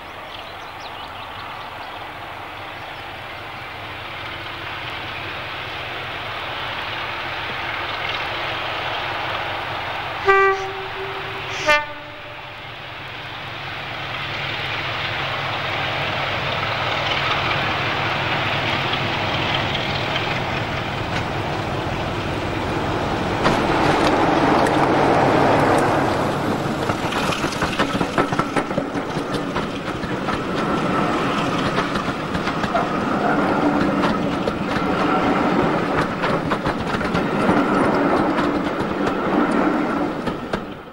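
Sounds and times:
diesel locomotive running: 0.0 - 40.9
train wheels clicking over rail joints: 3.8 - 40.9
locomotive horn toots: 10.2 - 12.6.

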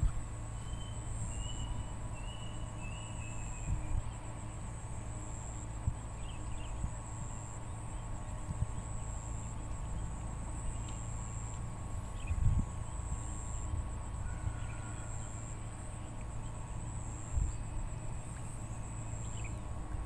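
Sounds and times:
wind rumble on microphone: 0.0 - 0.6, 1.2 - 4.8, 5.6 - 10.0, 12.0 - 15.3, 17.2 - 18.2
insects chirring: 0.0 - 20.0.

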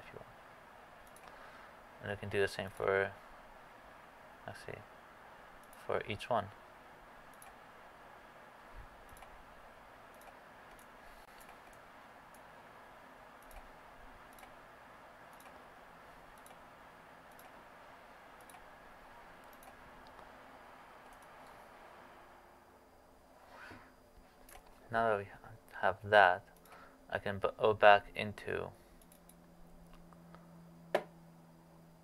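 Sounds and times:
low steady hiss: 0.0 - 32.0
computer mouse clicks: 1.0 - 1.4, 5.6 - 5.8, 7.3 - 7.6, 9.0 - 9.4, 10.1 - 12.5, 13.4 - 14.6, 15.3 - 15.6, 16.3 - 16.6, 17.3 - 17.6, 18.4 - 18.7, 19.4 - 20.3, 21.0 - 21.6, 26.5 - 26.8, 29.0 - 30.0.

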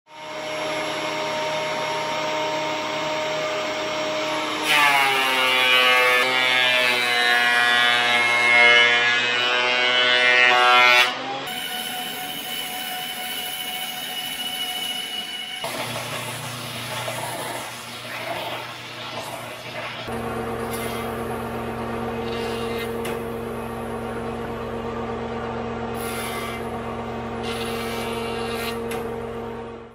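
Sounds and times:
thickness planer running: 0.1 - 29.9
board feeding into planer cutter: 0.2 - 11.8
planer knives rasping wood: 20.0 - 21.3, 22.1 - 23.4, 26.0 - 26.7, 27.4 - 29.1.

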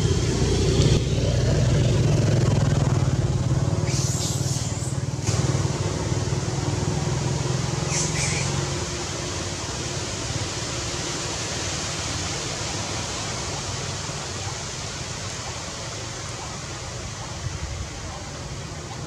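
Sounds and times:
motor engine running: 0.0 - 9.1.

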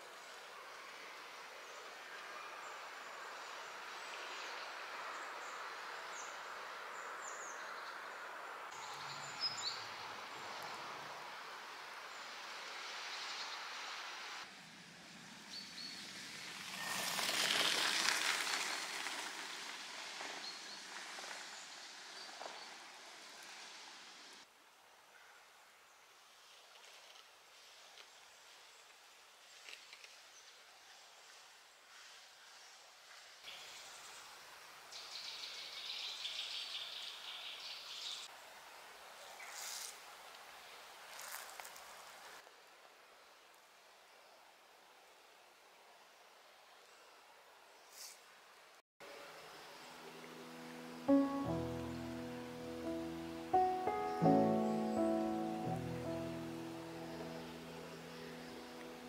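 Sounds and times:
rushing woodland noise: 0.0 - 59.0
brief hiss: 47.9 - 48.3.

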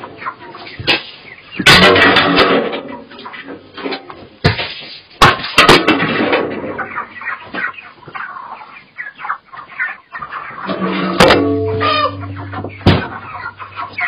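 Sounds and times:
chickens squawking and clucking: 0.0 - 14.0
sharp knocks and clatters: 10.6 - 14.0.

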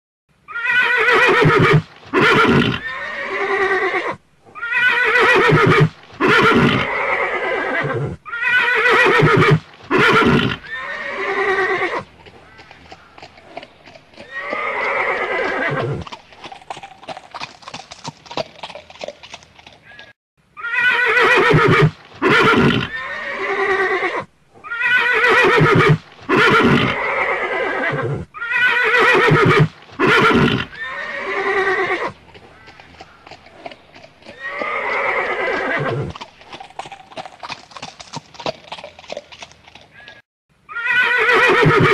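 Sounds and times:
horse whinnying: 0.5 - 12.6, 14.2 - 16.2, 19.8 - 33.4, 34.2 - 37.1, 39.9 - 41.9
hooves clip-clopping: 1.4 - 2.5, 5.5 - 6.9, 9.4 - 20.1, 25.8 - 26.6, 29.3 - 40.2.

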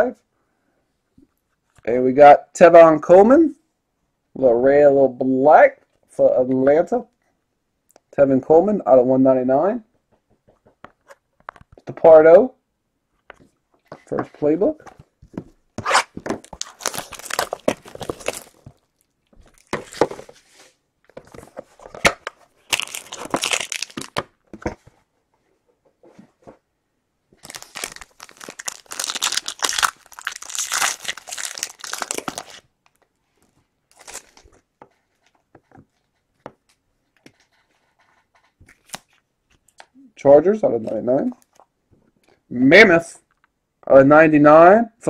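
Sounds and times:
foil wrappers tearing and crinkling: 16.4 - 18.8, 22.6 - 24.2, 27.4 - 32.6, 33.9 - 34.4.

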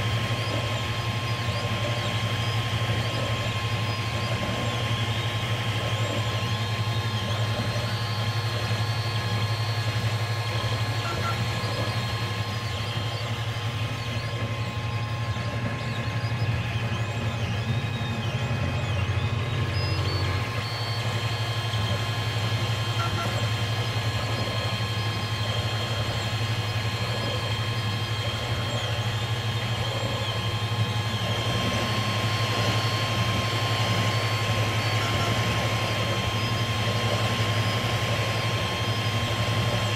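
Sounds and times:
stepper motors whining: 0.0 - 39.9.

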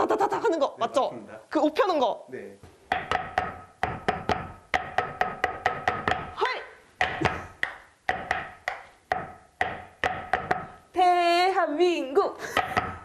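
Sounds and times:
wooden bats beating cloth: 2.9 - 6.4, 7.0 - 10.8.

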